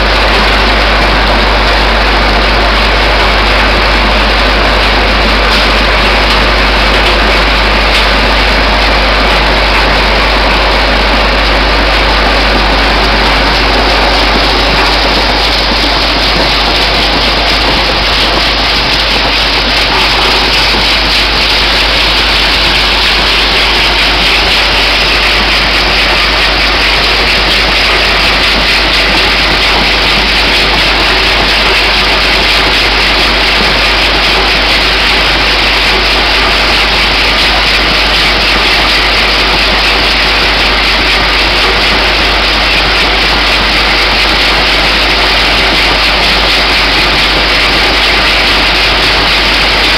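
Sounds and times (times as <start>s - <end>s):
low machine hum: 0.0s - 49.9s.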